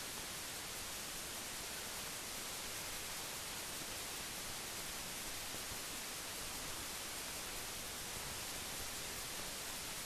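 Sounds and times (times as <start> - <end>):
steady film hiss: 0.0 - 10.0.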